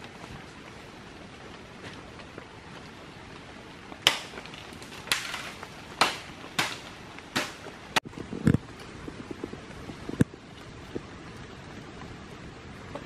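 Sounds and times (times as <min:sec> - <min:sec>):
faint steady hiss: 0:00.0 - 0:13.0
sharp cracks: 0:04.0 - 0:08.1.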